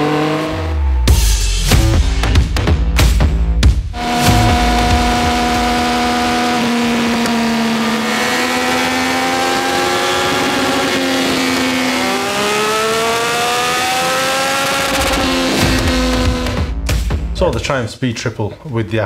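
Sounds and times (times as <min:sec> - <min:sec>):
motorcycle engine revving: 0:00.0 - 0:02.5, 0:04.0 - 0:16.8.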